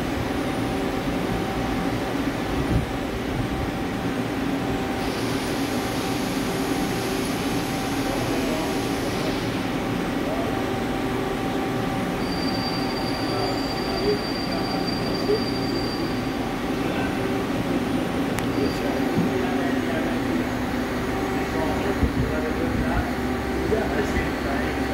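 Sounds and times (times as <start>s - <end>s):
thin high whine: 4.8s - 24.9s
hiss: 5.0s - 9.7s.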